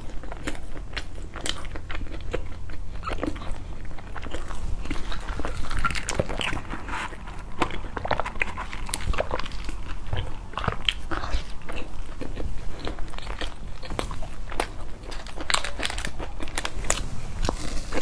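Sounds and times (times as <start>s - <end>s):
chewing with mouth clicks: 0.0s - 18.0s
plastic wrapper rustling: 14.6s - 18.0s.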